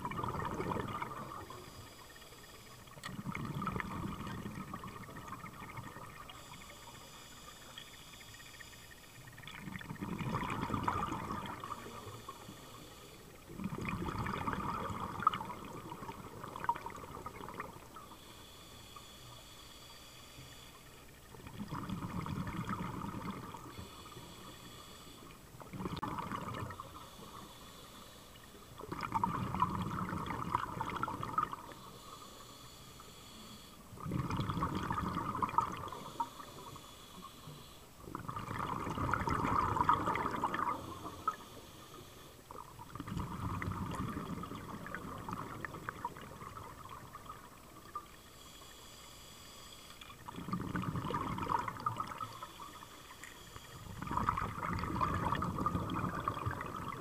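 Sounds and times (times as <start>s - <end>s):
diver inhaling through regulator: 10.5s - 13.5s, 22.6s - 25.4s, 26.7s - 28.9s, 29.8s - 38.0s, 38.7s - 42.5s, 48.0s - 54.6s.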